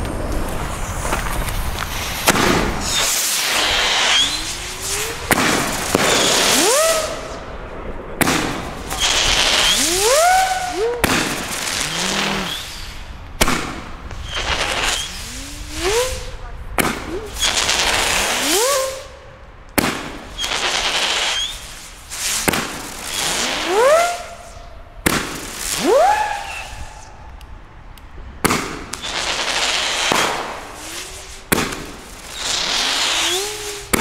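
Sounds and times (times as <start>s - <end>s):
firework shots cracking: 0.2s - 27.4s, 28.4s - 34.0s
hissing spark tail: 0.3s - 7.5s, 8.2s - 16.3s, 16.9s - 19.1s, 20.2s - 24.7s, 28.9s - 34.0s
firework howl rising in pitch: 2.6s - 13.1s, 14.3s - 16.4s, 17.0s - 19.3s, 23.0s - 24.8s, 25.7s - 27.2s, 29.1s - 31.6s, 32.2s - 34.0s.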